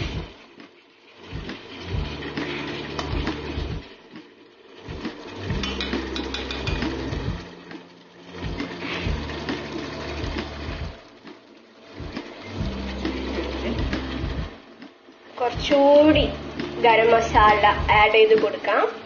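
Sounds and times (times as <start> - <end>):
spatula clicking against pan: 5.6 - 6.9
low hum: 11.9 - 14.7, 15.3 - 18.3.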